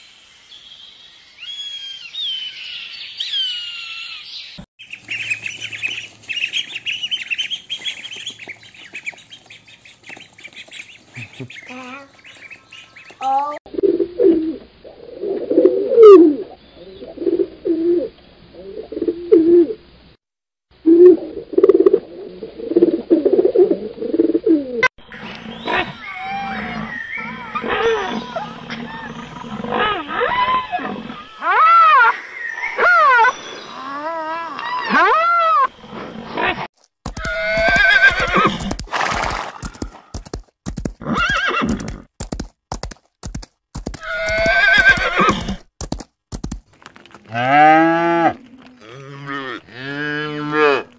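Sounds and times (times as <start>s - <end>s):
pigeon cooing: 13.7s - 19.8s, 20.9s - 24.9s
hoofbeats: 37.1s - 47.5s
horse whinnying: 37.2s - 38.7s, 41.0s - 42.0s, 44.0s - 45.6s.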